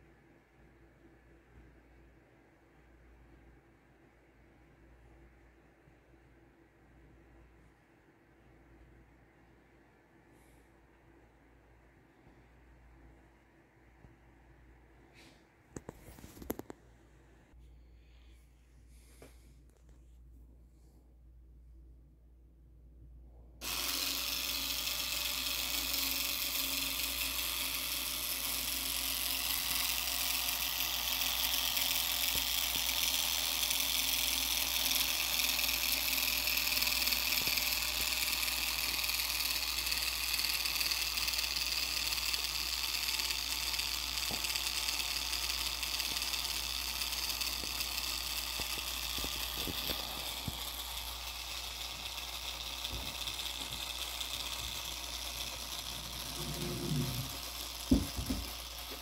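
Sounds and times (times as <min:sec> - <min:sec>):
tiny motor and propeller whirring: 0:23.6 - 0:59.0.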